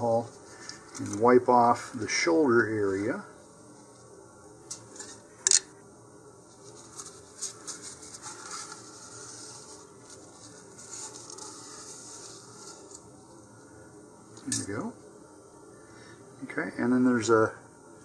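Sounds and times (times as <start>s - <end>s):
tissue rustling and rubbing: 6.5s - 13.0s.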